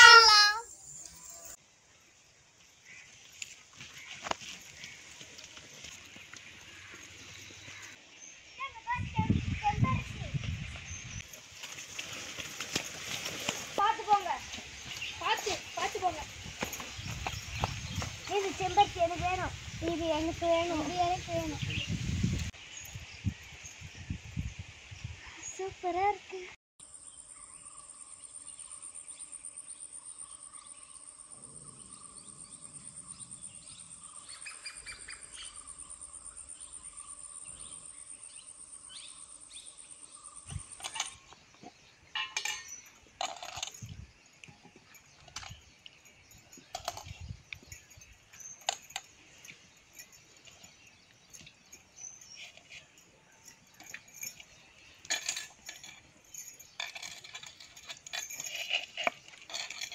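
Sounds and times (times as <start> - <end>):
potatoes clinking in steel bowls: 42.1 - 43.8.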